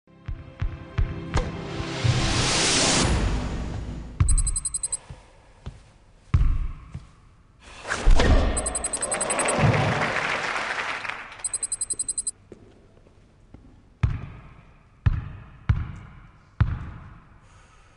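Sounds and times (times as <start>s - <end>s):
rapid high electronic blips: 4.3s - 5.0s, 8.6s - 9.5s, 11.5s - 12.3s.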